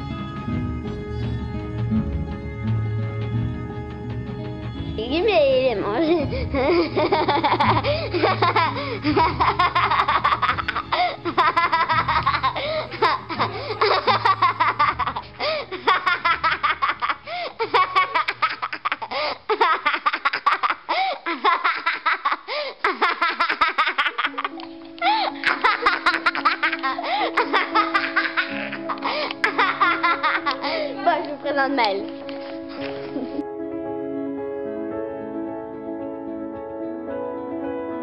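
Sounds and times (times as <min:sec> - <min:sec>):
background music: 0:00.0 - 0:38.0
high-pitched laughter: 0:06.1 - 0:31.1.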